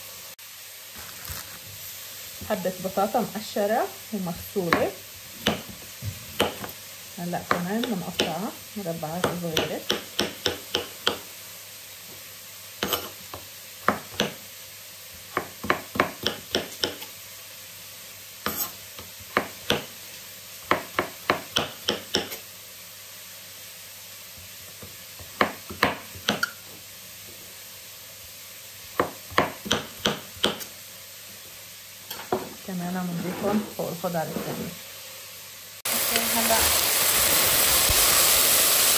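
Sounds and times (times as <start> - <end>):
knife chopping on cutting board: 4.7 - 5.8, 6.4 - 6.7, 9.2 - 11.2, 15.3 - 17.1, 18.5 - 19.9, 20.7 - 22.4, 25.2 - 26.5, 28.9 - 30.7.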